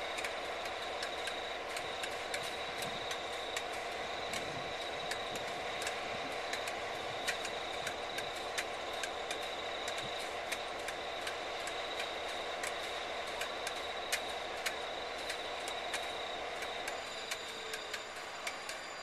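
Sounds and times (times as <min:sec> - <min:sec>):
diesel locomotive engine running: 0:00.0 - 0:19.0
sharp ticks: 0:00.0 - 0:19.0
thin high whine: 0:11.8 - 0:19.0.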